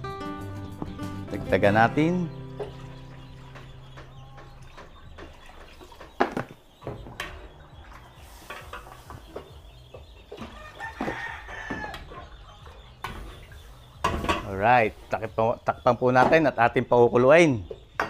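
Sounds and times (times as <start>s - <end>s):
chickens clucking: 0.6s - 18.0s
rooster crowing: 10.4s - 12.3s.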